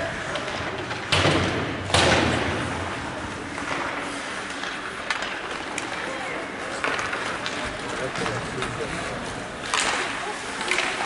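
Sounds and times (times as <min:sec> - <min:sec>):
bangs against rink boards: 0:00.2 - 0:06.0, 0:09.6 - 0:11.0.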